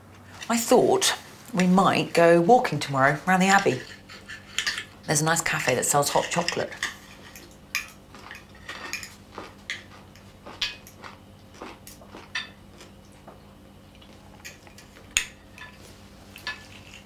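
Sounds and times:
low steady hum: 0:00.0 - 0:17.0
cutlery clinking on plates: 0:03.9 - 0:04.9.

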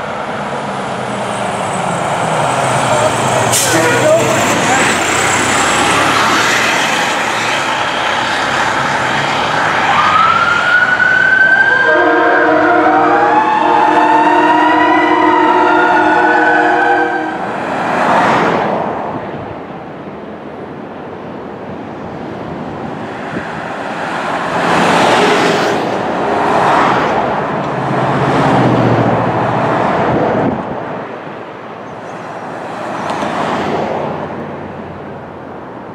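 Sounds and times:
vehicles rushing past: 0:00.0 - 0:20.7, 0:21.7 - 0:35.9
fire engine siren wailing: 0:01.6 - 0:17.5
horn sounding a chord: 0:11.8 - 0:17.4.

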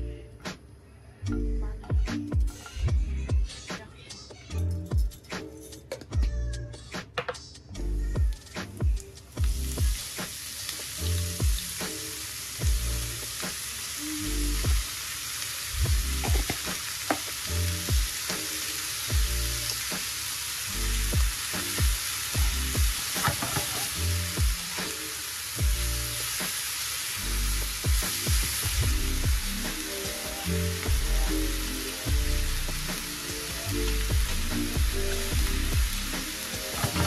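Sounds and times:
food sizzling in a pan: 0:08.3 - 0:37.0
spatula scraping a pan: 0:23.0 - 0:24.0, 0:36.7 - 0:37.0.

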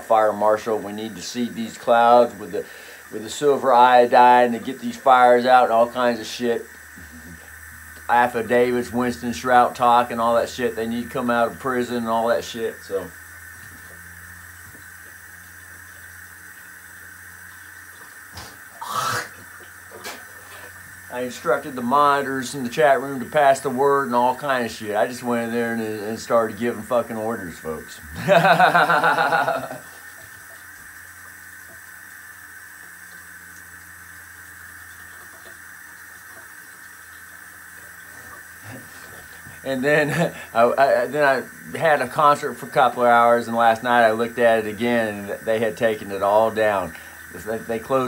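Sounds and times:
low hum and hiss: 0:00.0 - 0:48.0
tap water running into sink: 0:00.0 - 0:48.0
person spitting into a sink: 0:06.9 - 0:08.0, 0:17.9 - 0:20.8, 0:38.0 - 0:40.5.

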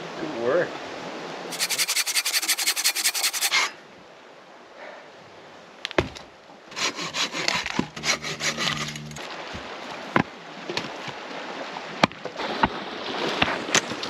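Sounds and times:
hand saw cutting log: 0:01.5 - 0:03.8, 0:06.7 - 0:09.2.

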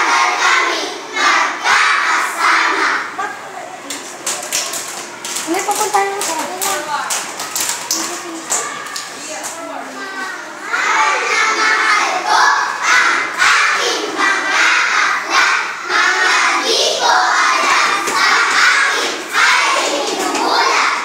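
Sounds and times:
children's chorus in unison: 0:00.0 - 0:03.1, 0:10.0 - 0:21.0.

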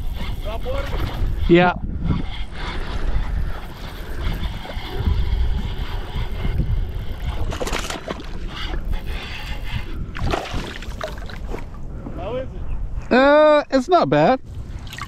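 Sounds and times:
wind rumble on microphone: 0:00.0 - 0:15.0
water slapping a hull: 0:02.8 - 0:11.8
fish thrashing and splashing: 0:03.0 - 0:11.7.

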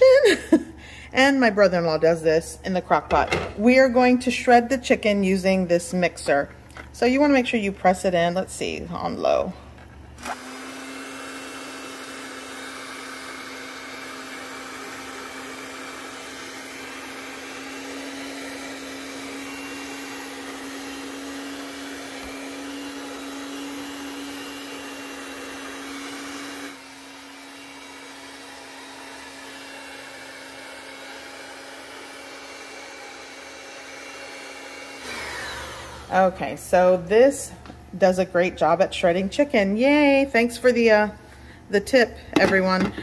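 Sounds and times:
electric hand mixer running: 0:03.3 - 0:37.1.

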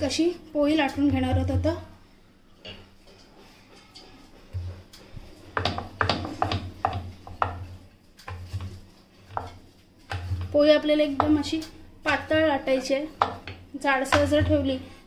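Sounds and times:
rolling pin on dough: 0:03.0 - 0:11.5.

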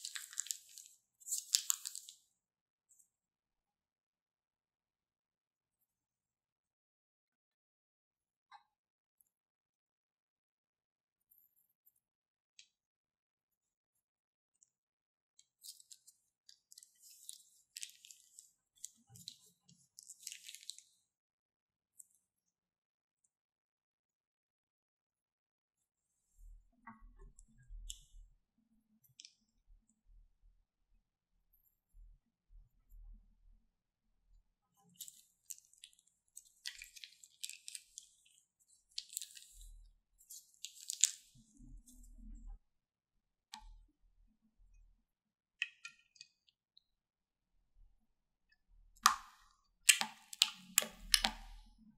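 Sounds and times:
slime squelching from piping bag: 0:00.0 - 0:02.2
wet crackling and popping of slime: 0:00.0 - 0:02.3, 0:15.6 - 0:20.9, 0:34.8 - 0:42.1, 0:49.0 - 0:51.8.

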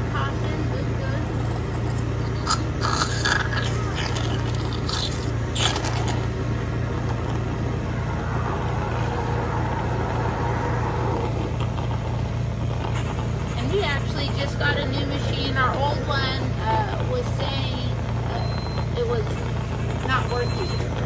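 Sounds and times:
respiratory machine humming: 0:00.0 - 0:21.0
suction tube slurping: 0:01.4 - 0:14.6.

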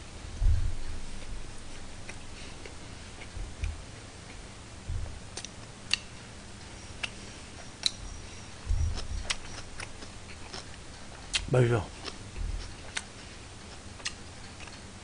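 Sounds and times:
soft low bumps: 0:00.0 - 0:02.4, 0:03.1 - 0:05.4, 0:08.0 - 0:10.0, 0:12.3 - 0:12.8
chopsticks clicking: 0:05.4 - 0:06.1, 0:07.8 - 0:08.0.

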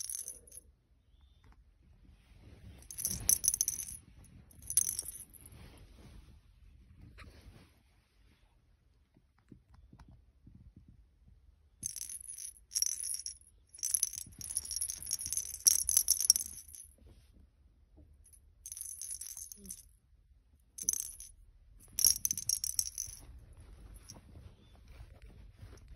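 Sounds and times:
small bell jingling in toy ball: 0:00.0 - 0:00.6, 0:02.8 - 0:05.5, 0:11.8 - 0:17.0, 0:18.3 - 0:19.9, 0:20.8 - 0:24.3.

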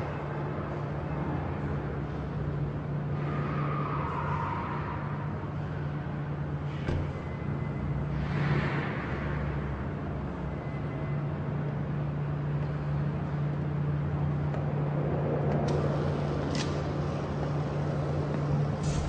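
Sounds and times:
steady low hum: 0:05.5 - 0:19.0
rumbling noise: 0:18.7 - 0:19.0.

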